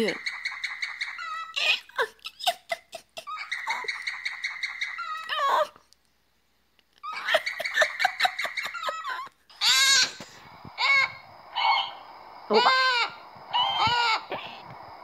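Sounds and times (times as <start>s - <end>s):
harsh bird call: 10.8s - 14.6s.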